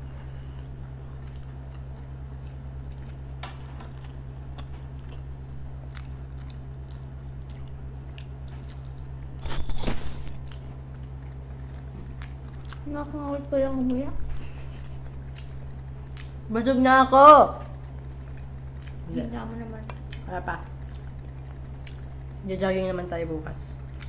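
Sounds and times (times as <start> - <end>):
low hum: 0.0 - 24.0
chewing mouth sounds: 3.9 - 12.9, 15.0 - 16.5.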